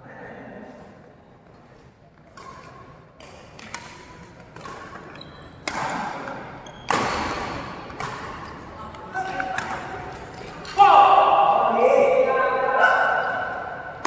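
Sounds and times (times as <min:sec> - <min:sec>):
rackets hitting shuttlecock: 0:02.2 - 0:10.8
shoes squeaking: 0:03.6 - 0:09.6.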